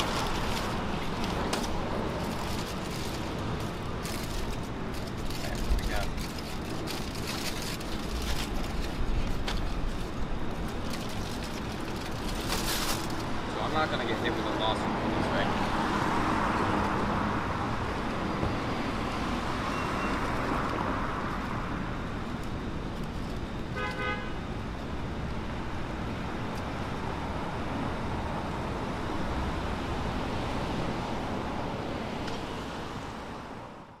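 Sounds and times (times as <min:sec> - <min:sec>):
street traffic: 0:00.0 - 0:34.0
car horn toot: 0:23.8 - 0:24.4.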